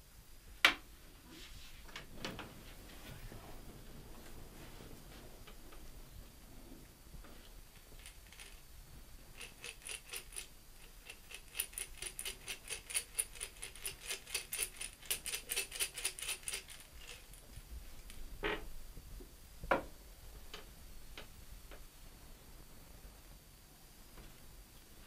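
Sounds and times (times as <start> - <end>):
small object clicking and rattling: 7.8 - 8.7, 9.3 - 18.2.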